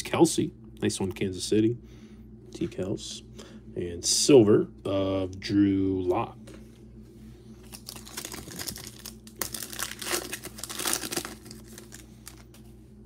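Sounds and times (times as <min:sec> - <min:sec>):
foil wrapper crinkling: 0:07.6 - 0:12.6.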